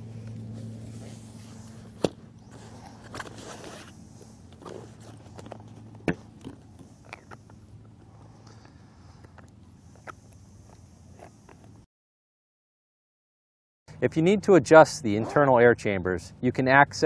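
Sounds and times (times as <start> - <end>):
low steady hum: 0.0 - 11.9.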